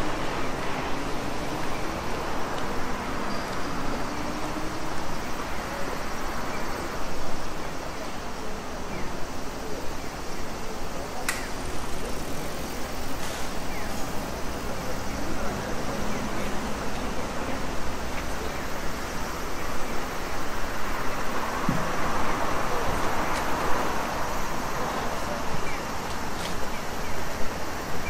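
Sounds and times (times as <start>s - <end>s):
road traffic hum: 0.0s - 28.0s
vehicles passing: 0.0s - 28.0s
sharp click: 11.2s - 11.5s.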